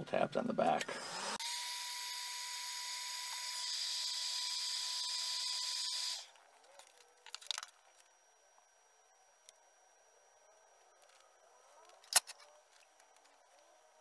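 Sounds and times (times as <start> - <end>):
heat gun blowing air: 0.9 - 6.3.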